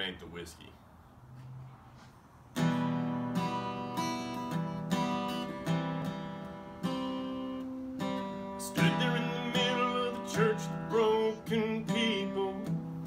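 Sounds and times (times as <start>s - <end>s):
acoustic guitar strumming chords: 2.6s - 13.0s.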